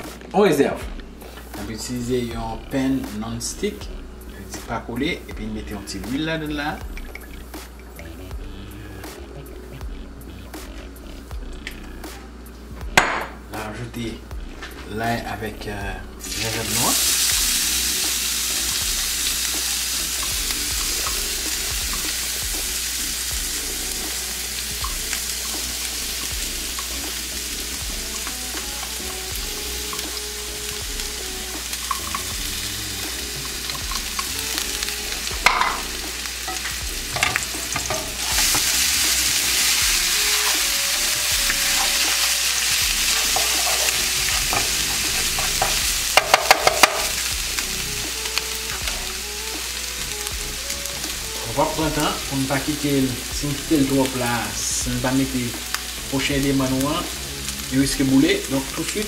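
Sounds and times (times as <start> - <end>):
garlic sizzling in oil: 16.2 - 59.0
wooden spatula clicking on pan: 45.4 - 47.1.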